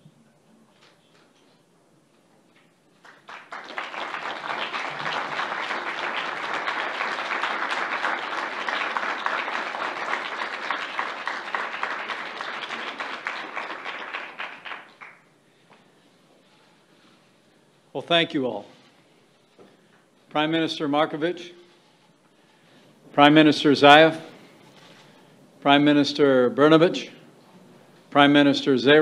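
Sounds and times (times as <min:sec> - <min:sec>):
audience applauding: 0:03.0 - 0:15.3.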